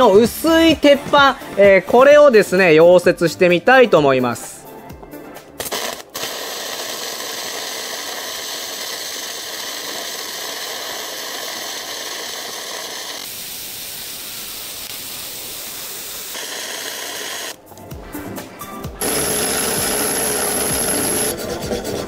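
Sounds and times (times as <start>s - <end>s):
welding arc sizzling: 5.6s - 17.9s, 19.0s - 21.5s.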